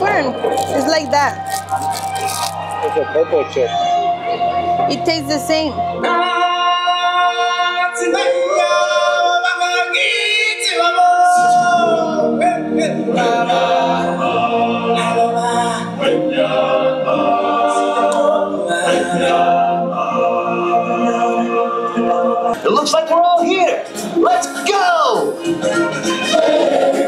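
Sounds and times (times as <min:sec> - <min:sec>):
singers holding long sliding notes: 0:05.8 - 0:22.6, 0:25.2 - 0:27.0.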